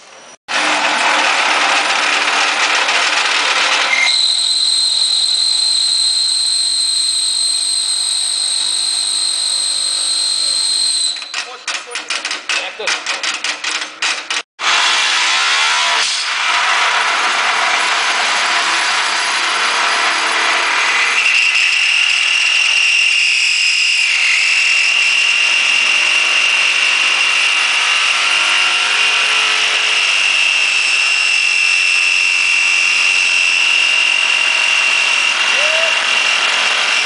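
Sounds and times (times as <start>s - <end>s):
high-pitched squeal: 0.0s - 11.5s, 14.6s - 37.0s
metal rods grinding by friction: 0.5s - 5.3s, 8.2s - 14.5s, 15.8s - 23.0s.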